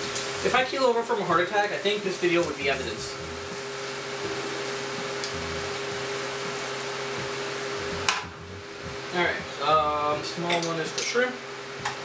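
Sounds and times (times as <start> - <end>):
shrimp sizzling in a frying pan: 0.0 - 12.0
faint hum: 2.5 - 10.5.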